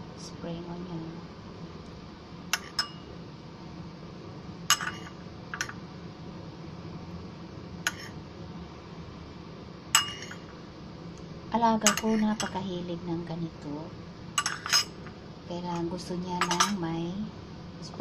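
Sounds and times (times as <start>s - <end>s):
spoon clinking on ceramic bowl: 4.7s - 5.7s, 10.0s - 10.4s, 11.8s - 12.6s, 14.4s - 15.0s, 16.4s - 16.8s.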